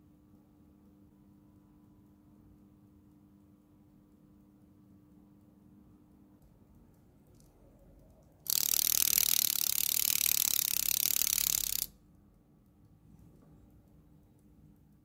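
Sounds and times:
clock movement buzzing ticks: 0:08.5 - 0:11.9.

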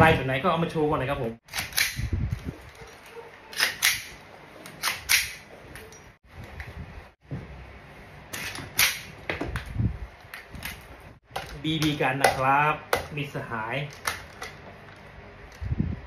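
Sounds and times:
rifle handling noise: 0:01.5 - 0:06.1, 0:13.9 - 0:15.1.

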